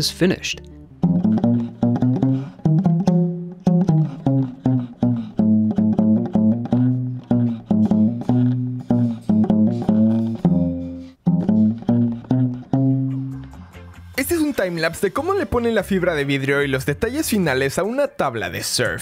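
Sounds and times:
one-string bottle guitar plucked: 0:00.0 - 0:13.8.

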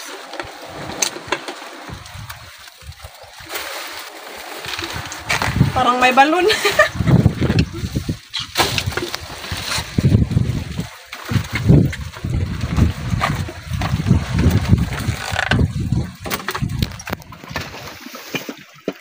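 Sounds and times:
wind buffeting microphone: 0:01.8 - 0:03.4, 0:04.6 - 0:17.9.

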